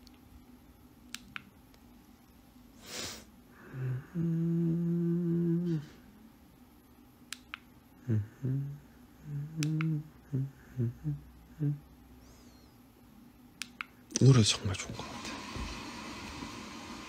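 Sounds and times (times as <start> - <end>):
man humming: 3.6 - 6.1, 8.0 - 12.0.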